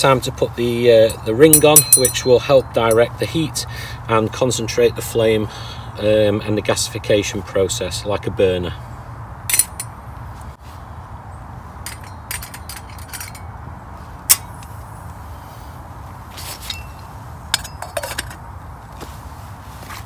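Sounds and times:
metal clinks and clanks: 0:01.0 - 0:03.1, 0:09.5 - 0:10.0, 0:11.8 - 0:13.6, 0:14.3 - 0:14.7, 0:16.6 - 0:18.4.

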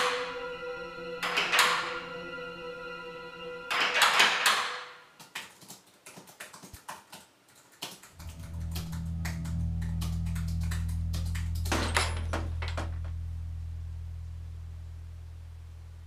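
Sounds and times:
low steady drone: 0:00.0 - 0:03.7, 0:08.2 - 0:16.0
typing on computer keyboard: 0:05.2 - 0:08.4.

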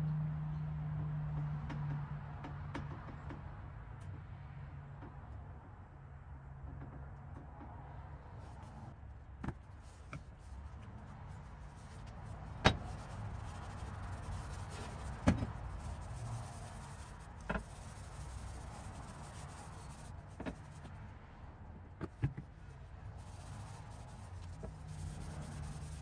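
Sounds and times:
handling and rubbing noise: 0:07.6 - 0:26.0.

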